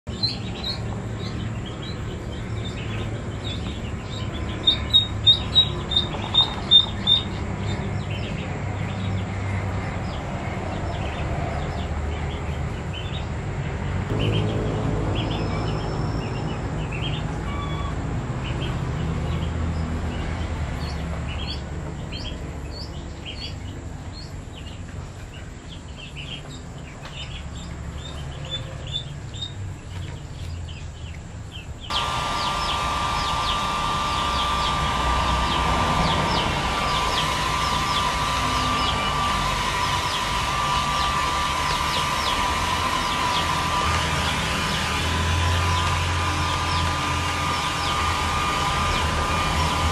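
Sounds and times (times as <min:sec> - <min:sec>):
ducklings peeping: 0:00.1 - 0:13.4, 0:14.1 - 0:49.9
steady low hum: 0:30.5 - 0:49.9.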